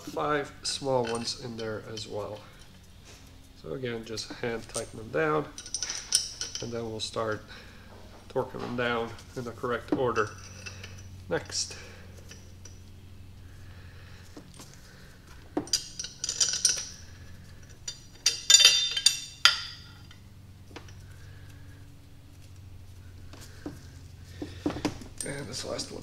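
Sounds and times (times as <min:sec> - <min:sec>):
steel bolts clinking: 0:00.0 - 0:02.9, 0:03.6 - 0:12.9, 0:15.4 - 0:21.6, 0:23.6 - 0:26.0
low steady hum: 0:00.0 - 0:26.0.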